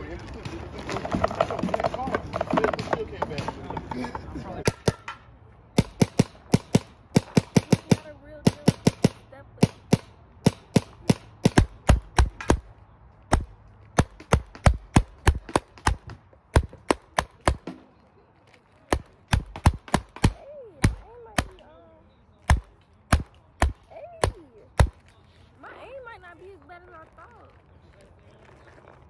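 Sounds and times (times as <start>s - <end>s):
paintball markers firing: 4.6s - 12.7s, 13.3s - 17.9s, 18.9s - 21.7s, 22.4s - 25.0s.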